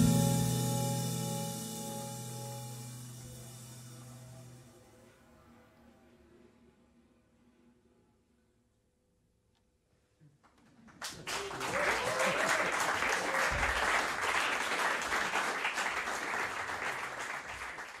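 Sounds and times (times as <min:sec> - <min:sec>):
audience applauding: 0:10.8 - 0:18.0.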